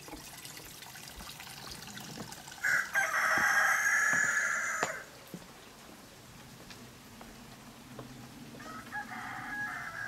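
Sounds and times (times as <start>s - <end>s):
rooster crowing: 2.6s - 5.1s, 8.6s - 10.0s.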